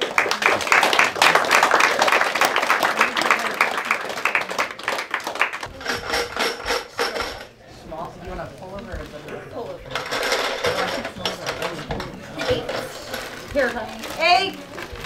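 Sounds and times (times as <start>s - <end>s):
crowd applauding: 0.0s - 5.7s.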